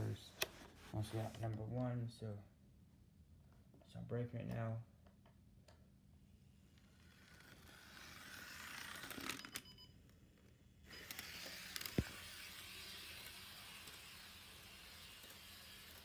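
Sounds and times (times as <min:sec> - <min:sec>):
model train motor whirring: 0:06.8 - 0:09.6, 0:10.9 - 0:16.0.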